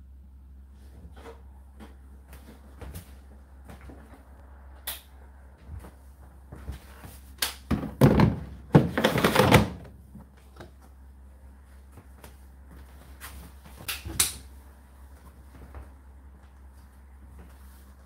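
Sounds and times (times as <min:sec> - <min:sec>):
plastic scraping and knocking: 0:07.7 - 0:09.9.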